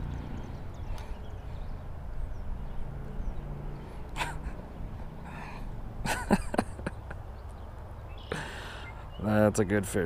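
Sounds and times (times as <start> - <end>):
wind and handling rumble: 0.0 - 8.2
breathy vocal sounds: 4.0 - 5.8, 8.3 - 9.0.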